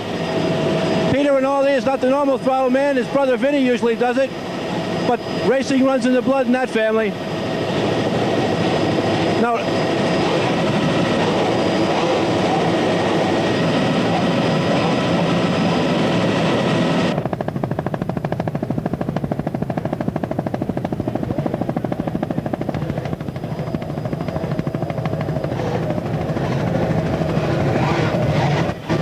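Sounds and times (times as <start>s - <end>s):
loud engine at high speed: 22.7s - 29.0s.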